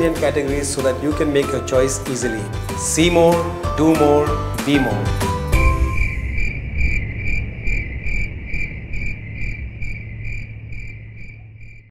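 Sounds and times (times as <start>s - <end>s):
low hum: 5.5s - 11.9s
insect chirping: 5.6s - 11.9s.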